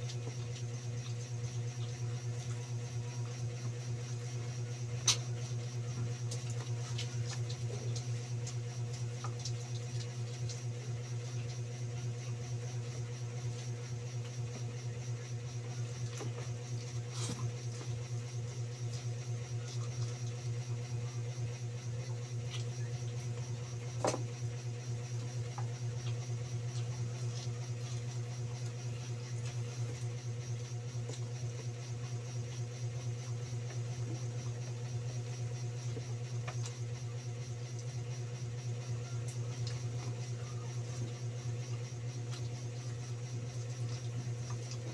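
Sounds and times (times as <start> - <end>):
low motor hum: 0.0 - 44.9.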